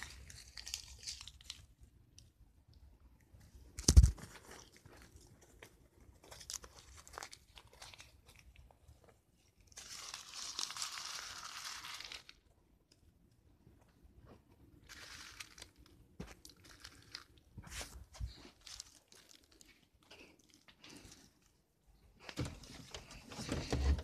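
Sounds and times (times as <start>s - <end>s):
paper crumpling crackles: 0.0s - 1.8s, 3.8s - 12.5s, 14.8s - 21.6s
paper tearing rustle: 9.7s - 12.4s.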